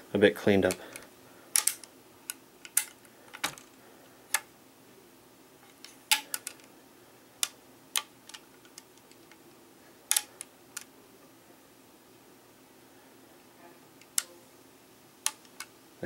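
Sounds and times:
rifle handling clicks and taps: 1.6s - 3.7s, 7.4s - 9.4s, 10.1s - 10.9s, 14.0s - 14.3s, 15.2s - 15.7s.

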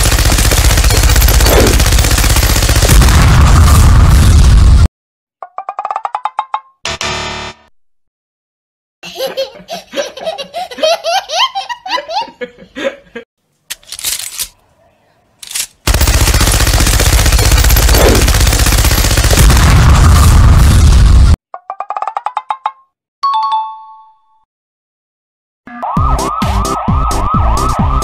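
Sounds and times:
machine gun firing: 0.0s - 3.9s, 15.8s - 20.4s
wrong-answer buzzer: 6.9s - 7.7s
baby giggling: 9.0s - 12.5s.

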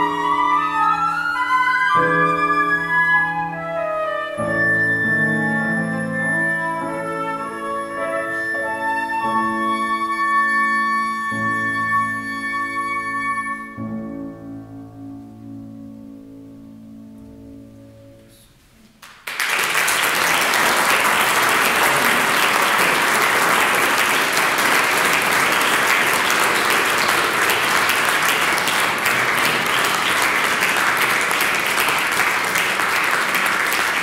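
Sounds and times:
audience applause: 19.0s - 34.0s.

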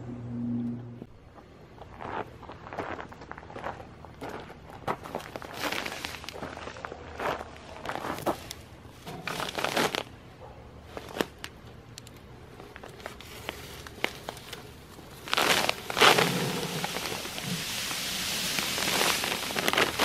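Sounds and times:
footsteps on gravel: 1.3s - 10.2s, 15.0s - 20.0s
plastic bag crinkling: 9.2s - 10.1s, 12.8s - 20.0s
plastic bag ripping: 9.2s - 10.1s, 13.2s - 20.0s
sand pouring: 15.2s - 20.0s.

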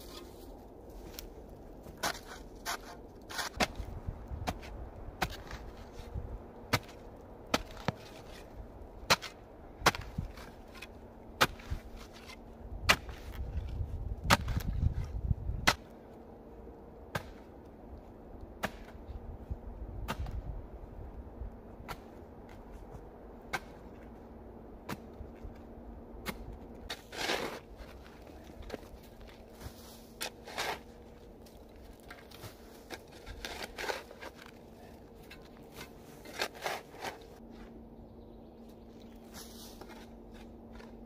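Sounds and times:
shovel striking earth: 1.8s - 6.1s, 6.7s - 15.9s, 17.1s - 17.5s, 18.6s - 19.0s, 20.0s - 20.4s, 21.8s - 22.7s, 23.5s - 24.1s, 24.8s - 25.2s, 26.2s - 34.6s, 35.2s - 37.4s.

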